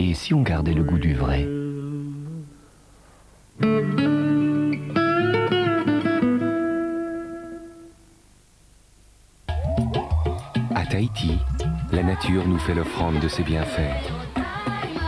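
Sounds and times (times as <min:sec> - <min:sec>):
plucked guitar notes: 0:03.6 - 0:08.0, 0:09.5 - 0:14.2.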